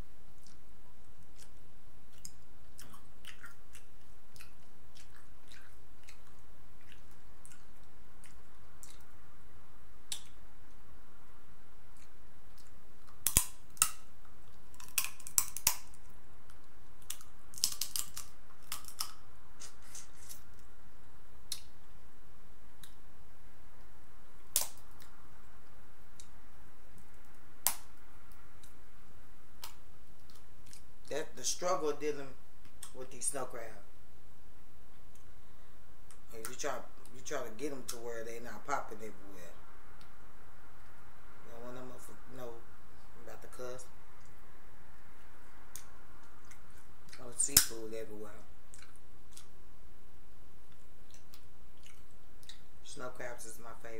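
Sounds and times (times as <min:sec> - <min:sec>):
crab legs cracking and snapping: 0:12.6 - 0:14.0, 0:14.7 - 0:16.0, 0:17.0 - 0:20.4, 0:24.5 - 0:25.1, 0:27.6 - 0:27.9.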